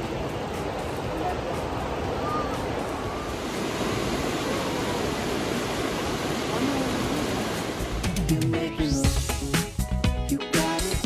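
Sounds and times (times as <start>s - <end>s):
waterfall rushing: 0.0s - 8.9s.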